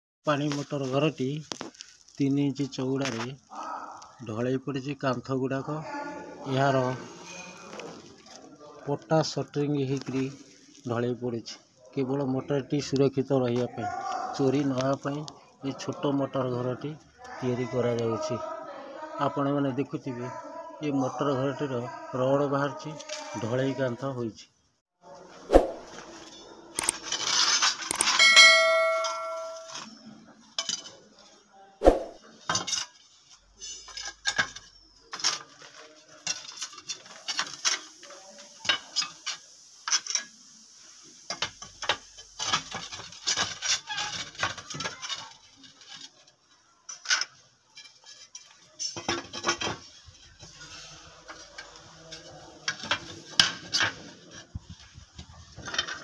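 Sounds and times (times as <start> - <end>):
ceramic tiles clinking and scraping: 26.8 - 30.0, 32.4 - 40.4, 41.3 - 56.0
bell-like ding: 28.0 - 29.9.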